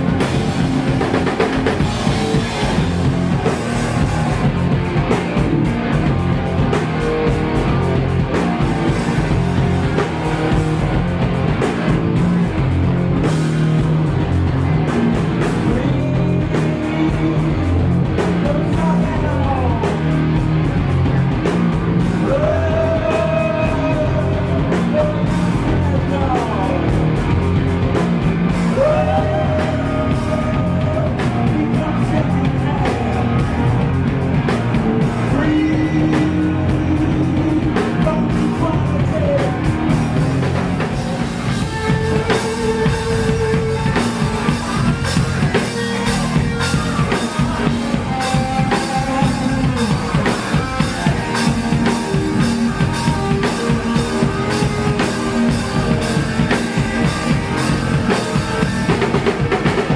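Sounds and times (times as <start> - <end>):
punk rock band playing live: 0.0 - 59.9
person singing long notes: 15.4 - 20.1, 22.2 - 27.0, 28.5 - 33.9, 35.0 - 59.8.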